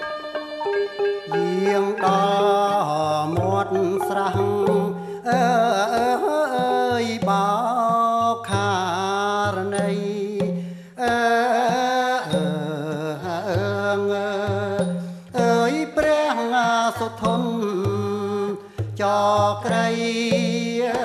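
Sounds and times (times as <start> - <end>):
woman singing ornamented phrases: 0.0 - 7.5.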